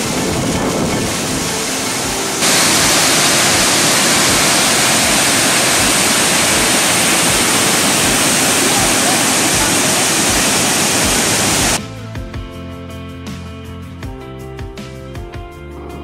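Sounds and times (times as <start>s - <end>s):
waterfall rushing: 0.0s - 11.8s.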